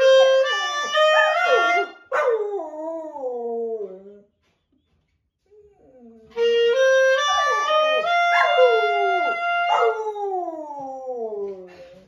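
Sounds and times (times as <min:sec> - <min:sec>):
clarinet: 0:00.0 - 0:02.1, 0:05.8 - 0:12.0
dog howling: 0:07.1 - 0:11.5.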